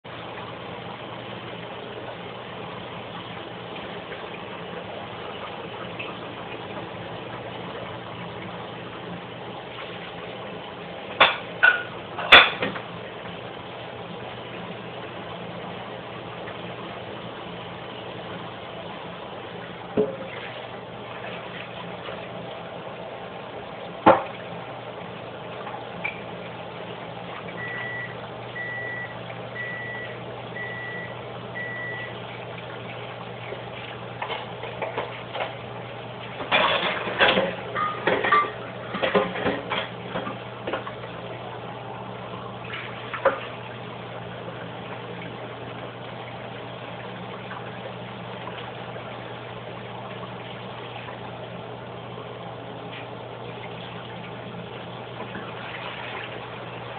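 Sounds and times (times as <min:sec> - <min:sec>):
appliance beeping: 0:27.6 - 0:32.3.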